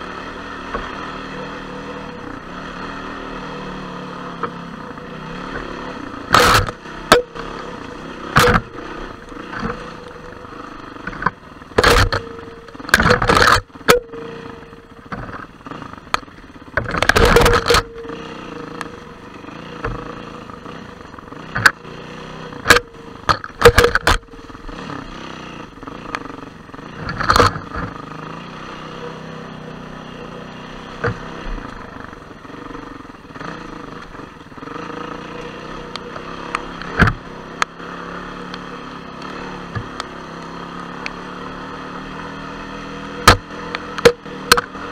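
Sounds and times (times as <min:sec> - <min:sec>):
motorbike engine running: 0:00.0 - 0:44.9
knocks and clatters: 0:08.3 - 0:08.7, 0:11.0 - 0:14.1, 0:15.1 - 0:18.0, 0:22.6 - 0:24.3, 0:27.0 - 0:28.0.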